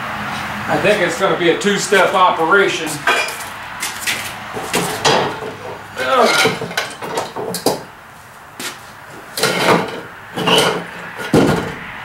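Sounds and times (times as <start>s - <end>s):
heavy clunk: 4.5s - 7.9s, 9.1s - 12.0s
wood and metal knocking on barrel: 4.6s - 7.9s, 9.1s - 11.9s.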